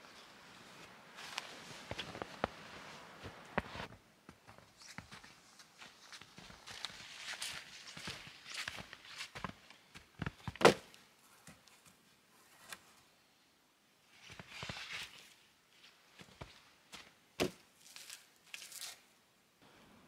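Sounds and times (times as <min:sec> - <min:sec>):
rustling in snow: 0:00.0 - 0:09.9
footsteps crunching in snow: 0:00.1 - 0:10.5, 0:14.3 - 0:18.9.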